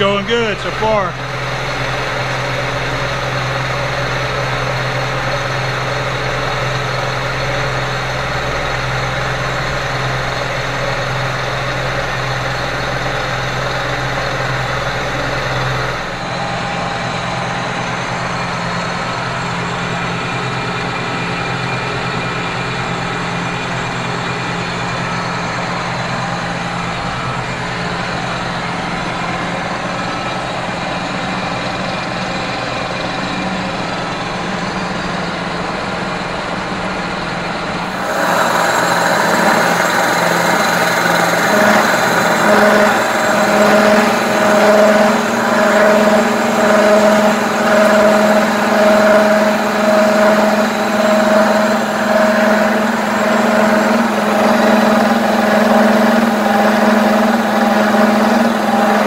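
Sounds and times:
milling machine hum: 0.0s - 59.0s.

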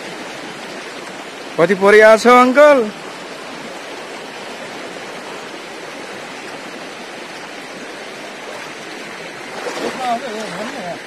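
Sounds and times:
river water running over rocks: 0.0s - 11.0s.

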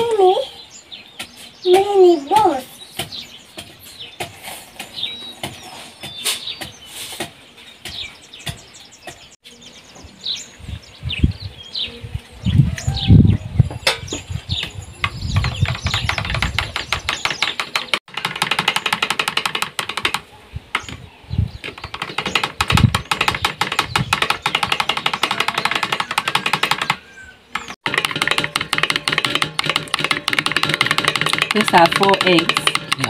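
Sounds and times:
utensil beating eggs in a bowl: 27.8s - 33.0s.

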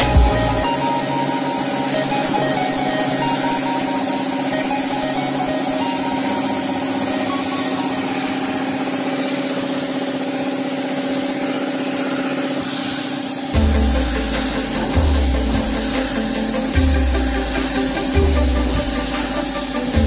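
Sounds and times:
steady low hum: 0.0s - 9.7s, 13.5s - 20.0s
paint spray gun hissing: 0.0s - 20.0s.

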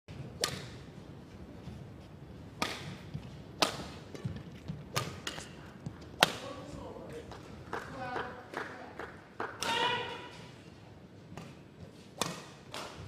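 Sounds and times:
badminton racket hitting shuttlecock: 0.3s - 0.9s, 2.5s - 5.6s, 11.4s - 13.0s
footsteps on court: 1.2s - 7.6s.

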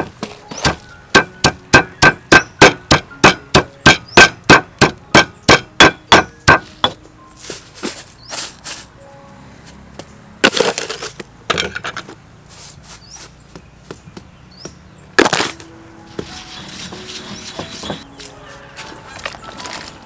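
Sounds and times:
stone pestle pounding in mortar: 0.0s - 7.0s, 16.8s - 18.0s.

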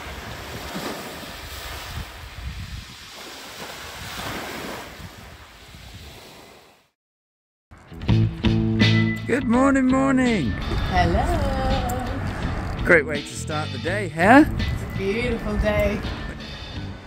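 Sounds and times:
wind buffeting microphone: 0.0s - 6.2s, 10.6s - 12.9s, 14.3s - 17.0s
waves lapping on shingle: 0.0s - 6.8s.

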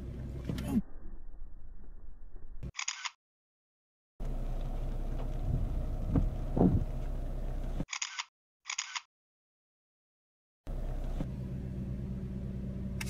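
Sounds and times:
camera shutter clicks: 2.8s - 3.2s, 7.9s - 9.1s
steady low hum: 4.2s - 7.8s.

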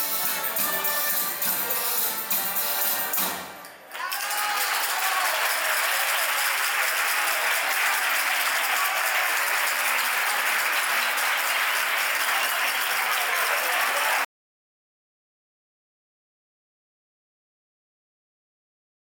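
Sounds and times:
crowd applauding: 3.7s - 14.3s.

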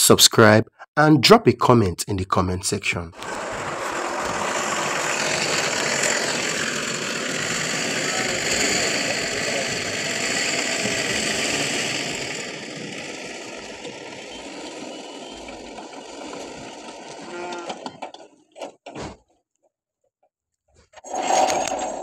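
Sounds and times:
mechanical running noise: 3.2s - 18.7s
steel gate creaking and rattling: 15.0s - 19.1s.

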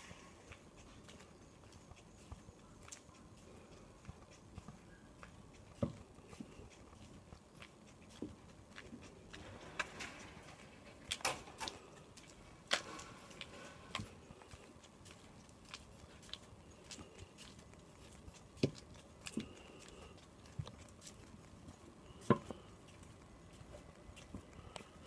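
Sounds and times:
footsteps on asphalt: 0.0s - 25.0s.

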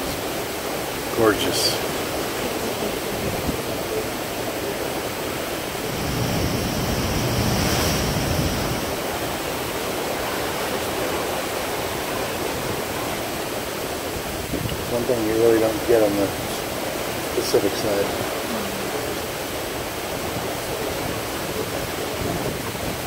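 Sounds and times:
sea water rushing and waves breaking: 0.0s - 23.0s
wind on microphone: 1.8s - 11.1s, 12.0s - 15.2s, 18.1s - 23.0s.

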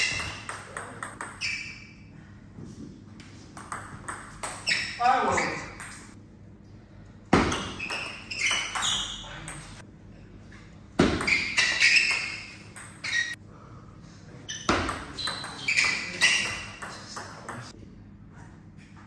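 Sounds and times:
table tennis ball hits: 0.0s - 1.8s, 3.5s - 5.0s, 7.3s - 9.8s, 11.0s - 13.4s, 14.7s - 17.7s.

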